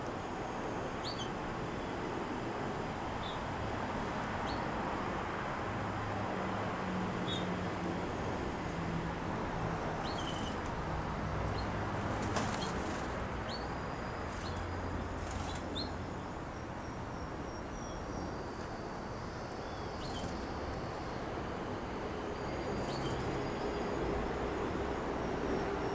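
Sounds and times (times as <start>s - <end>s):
background noise: 0.0s - 25.9s
canaries chirping: 9.8s - 10.7s, 11.5s - 18.7s, 19.4s - 20.8s, 22.4s - 23.9s
bird wings fluttering: 12.0s - 13.2s.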